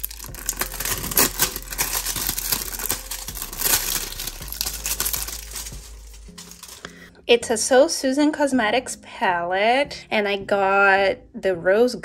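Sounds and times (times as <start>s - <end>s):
plastic wrapping crinkling: 0.0s - 7.1s.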